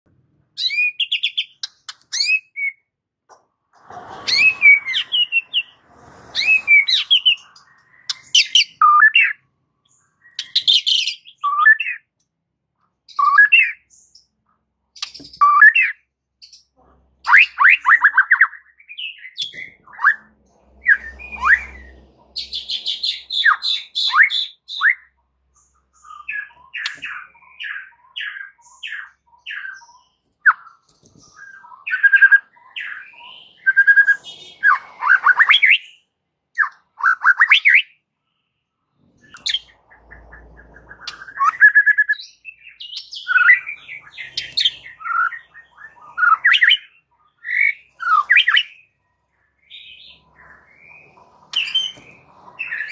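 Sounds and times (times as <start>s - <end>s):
songbird singing whistled phrases: 0.6s - 2.9s, 6.4s - 9.4s, 10.0s - 12.1s, 13.1s - 14.0s, 15.0s - 16.6s, 22.4s - 25.1s, 26.0s - 36.0s, 36.6s - 38.0s, 39.3s - 48.9s.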